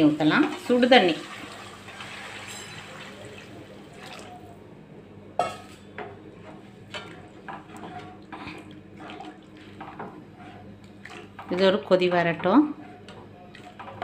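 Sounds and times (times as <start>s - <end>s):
hot water pouring into pan: 1.1s - 3.5s.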